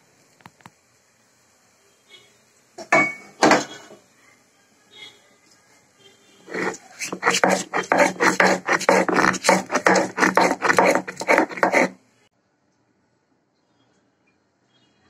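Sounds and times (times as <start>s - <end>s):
stone roller rasping on grinding slab: 6.5s - 12.0s.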